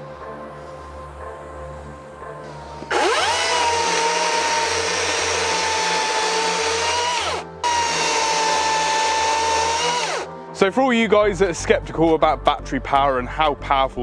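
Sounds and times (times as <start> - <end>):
chainsaw cutting logs: 2.9 - 10.3.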